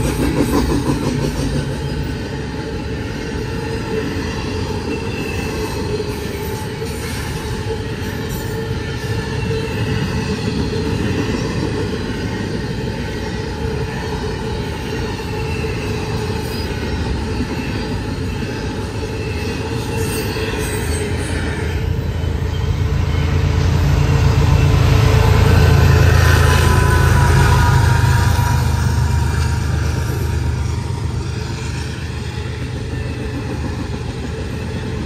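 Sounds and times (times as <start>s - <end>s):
diesel locomotive engine rumble: 0.0s - 35.0s
train wheels rumbling on rails: 0.0s - 35.0s
high wheel squeal: 12.1s - 33.5s.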